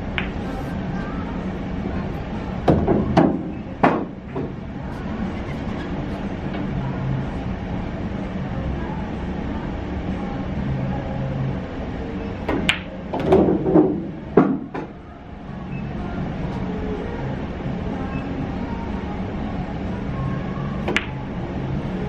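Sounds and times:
pool balls clacking: 0.0s - 0.9s, 2.0s - 6.8s, 12.4s - 15.0s, 20.7s - 21.9s
low room hum: 0.0s - 22.0s.

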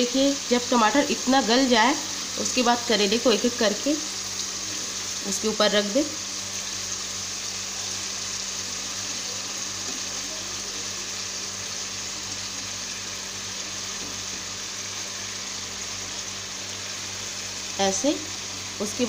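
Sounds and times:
tomatoes and oil sizzling: 0.0s - 19.0s.

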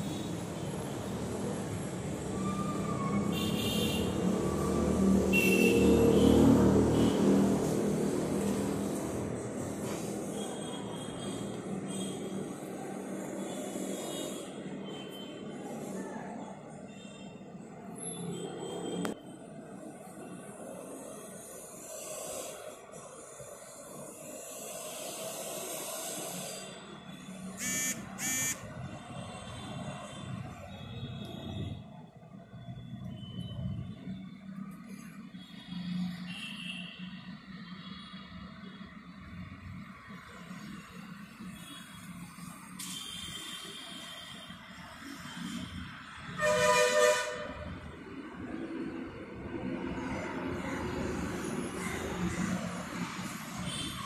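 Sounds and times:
vehicle engine passing by: 4.1s - 10.3s
high-pitched tones: 27.6s - 28.6s.

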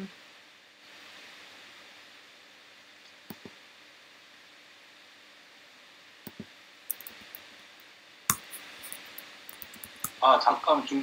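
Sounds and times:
faint steady hiss: 0.0s - 11.0s
computer clicks: 6.3s - 7.4s, 8.3s - 10.2s.

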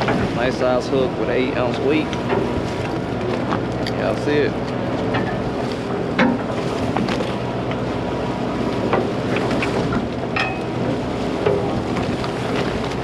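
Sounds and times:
boat engine hum: 0.0s - 13.0s
wind on microphone: 8.2s - 13.0s.

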